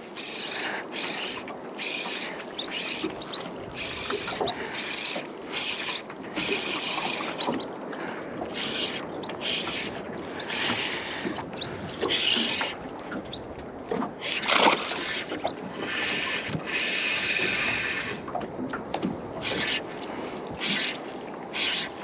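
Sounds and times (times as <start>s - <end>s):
fishing reel cranking: 0.1s - 7.5s, 8.5s - 11.2s, 12.0s - 12.8s, 14.2s - 18.3s, 19.4s - 22.0s.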